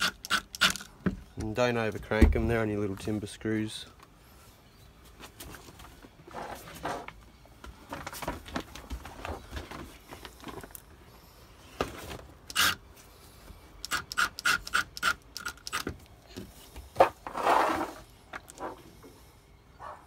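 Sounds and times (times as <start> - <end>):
cordless drill driving screws: 0.0 - 0.9, 12.5 - 12.8, 13.8 - 15.9
drill bit clicking on screws: 0.0 - 0.9, 12.5 - 12.8, 13.8 - 15.9.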